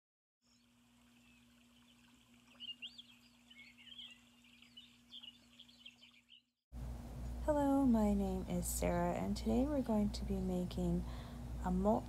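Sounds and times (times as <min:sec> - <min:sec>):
faint birdsong chirps: 0:00.4 - 0:06.6
low steady hum: 0:06.8 - 0:12.0.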